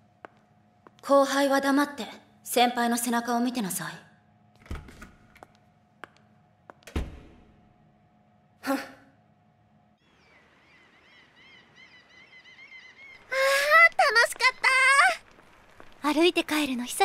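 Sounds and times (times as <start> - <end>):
faint steady hum: 0.0 - 17.0
small birds chirping: 10.0 - 14.6.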